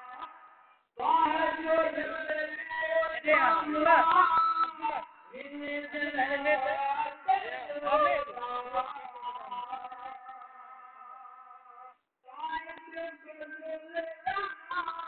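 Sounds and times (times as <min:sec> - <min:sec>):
man singing devotional chant: 0:00.0 - 0:15.0.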